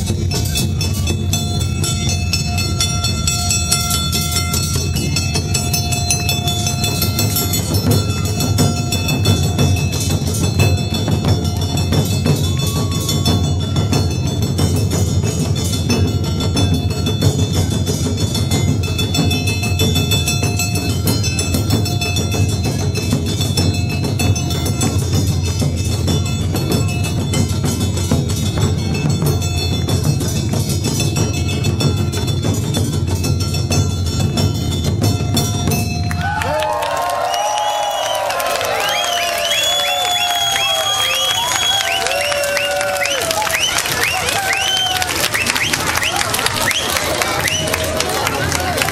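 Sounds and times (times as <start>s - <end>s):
barrel drums beating: 0.0s - 36.2s.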